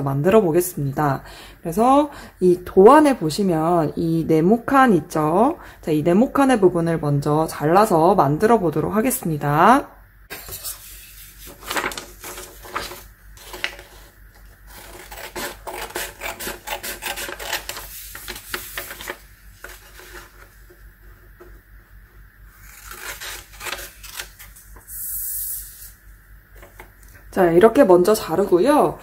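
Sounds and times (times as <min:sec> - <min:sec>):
paper rustling: 0:10.3 - 0:15.1, 0:17.0 - 0:21.2
scissors snipping paper: 0:14.7 - 0:20.2, 0:22.6 - 0:24.5.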